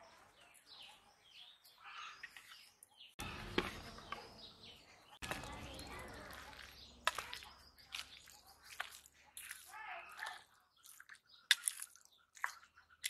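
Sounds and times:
wet squishing: 5.2 - 13.0.

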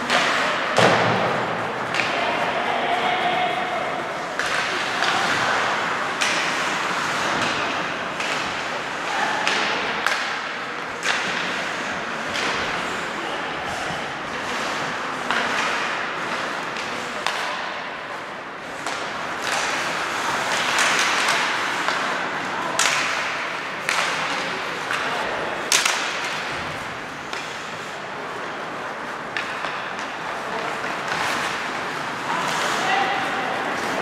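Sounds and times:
skates scraping on ice: 0.0 - 9.8, 13.7 - 34.0
hockey stick hitting puck: 0.0 - 13.0, 14.3 - 34.0.

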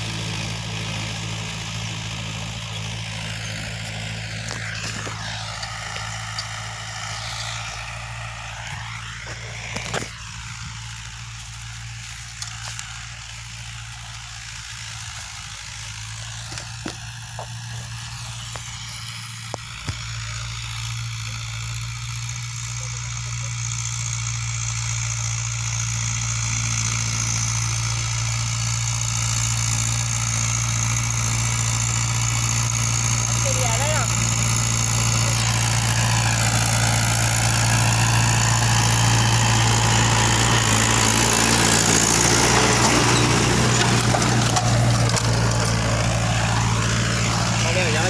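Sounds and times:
tractor diesel engine under load: 0.0 - 48.0.

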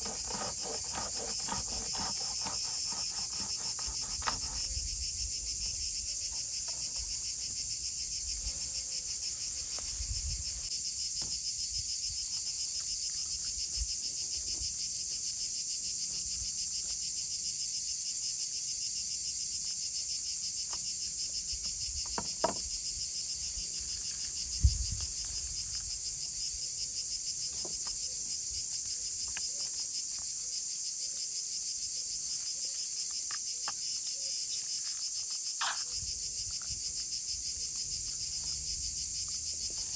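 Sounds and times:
insects trilling: 0.0 - 39.9
knocks on wooden cutting board: 22.1 - 22.6.

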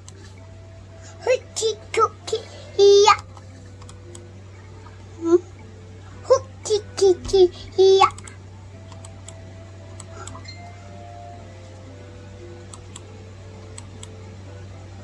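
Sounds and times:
computer mouse clicks: 0.0 - 0.3, 3.2 - 4.3, 8.1 - 9.4, 10.0 - 10.5, 12.7 - 13.1, 13.7 - 14.2
low hum: 0.0 - 15.0.

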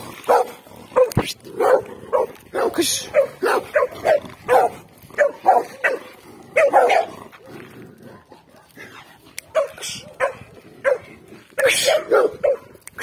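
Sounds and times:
dog barking: 0.2 - 7.2, 9.4 - 12.7.

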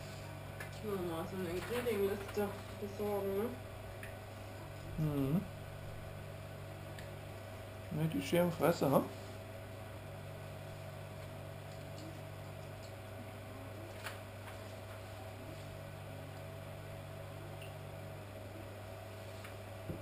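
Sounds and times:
aquarium equipment humming: 0.0 - 20.0
second low tone: 5.0 - 5.5.

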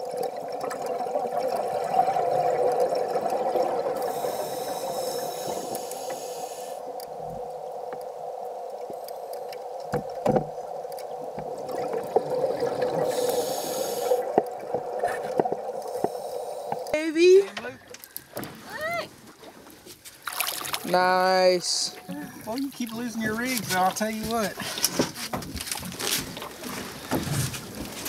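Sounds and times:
steady hum: 0.1 - 18.4
scuba regulator breathing hiss: 4.0 - 7.0, 13.0 - 14.3, 15.9 - 16.8
knocks: 9.9 - 10.5.

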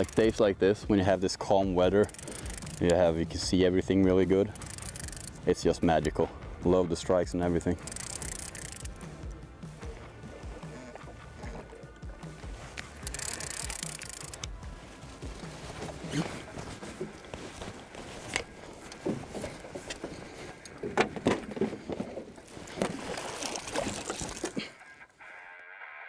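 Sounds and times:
fish splashing at water surface: 22.6 - 24.7.

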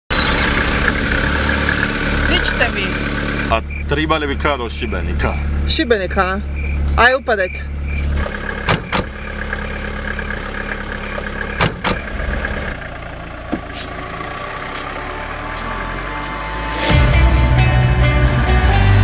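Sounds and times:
car engine idling: 0.1 - 17.8
car driving off: 0.1 - 19.0
car doors shutting: 7.7 - 12.6, 13.5 - 14.0.

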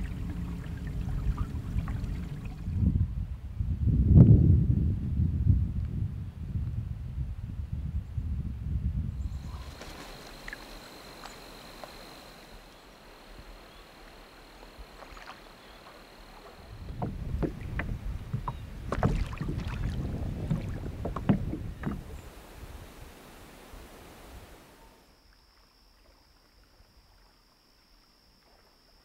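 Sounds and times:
paddle splashing water: 0.0 - 2.8, 9.3 - 28.9
wind on microphone: 0.0 - 25.0.

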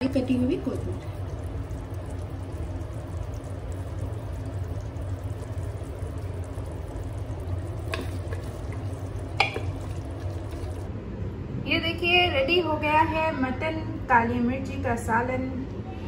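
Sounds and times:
gravy simmering and sizzling: 0.0 - 10.9
wooden spatula stirring: 6.8 - 10.9
spatula knocking against pot: 9.4 - 10.0.

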